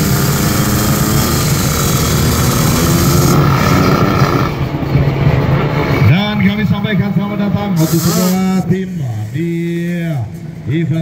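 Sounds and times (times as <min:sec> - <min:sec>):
motorcycle engine at steady revs: 0:00.0 - 0:05.1, 0:07.6 - 0:09.4.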